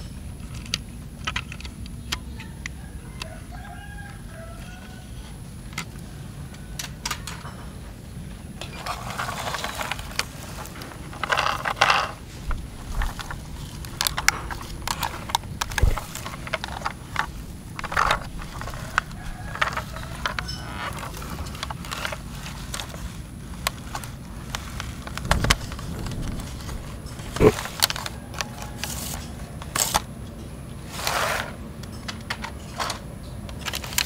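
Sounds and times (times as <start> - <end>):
plastic toy clicks and knocks: 0.4 - 2.5, 11.2 - 22.2
grass rustling: 9.2 - 28.1.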